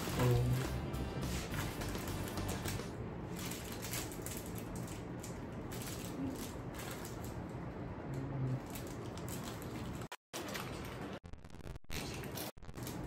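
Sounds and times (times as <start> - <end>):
plastic candy wrappers crinkling: 1.5 - 7.5, 8.5 - 10.9.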